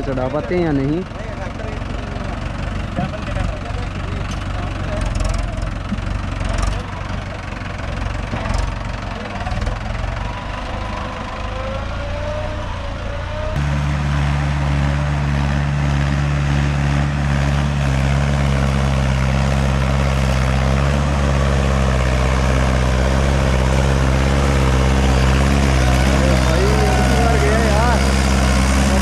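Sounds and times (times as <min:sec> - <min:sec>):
tractor diesel engine under load: 0:00.0 - 0:29.0.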